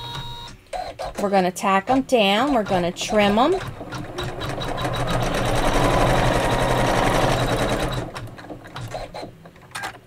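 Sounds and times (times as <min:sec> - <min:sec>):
embroidery machine stitching: 0:00.8 - 0:09.3.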